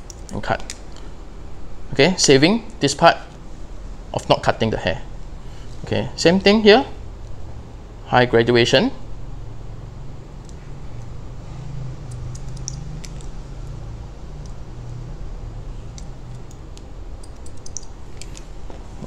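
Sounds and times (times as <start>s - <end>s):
steady low hum: 0.0s - 19.0s
scissors snipping hair: 12.0s - 14.6s, 15.9s - 18.5s.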